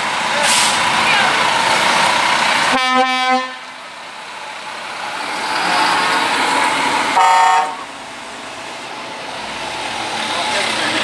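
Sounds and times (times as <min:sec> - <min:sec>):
heavy truck driving past: 0:00.0 - 0:11.0
higher-pitched horn blast: 0:02.7 - 0:03.7, 0:07.2 - 0:07.8
truck horn honking: 0:02.7 - 0:03.7, 0:07.1 - 0:07.9.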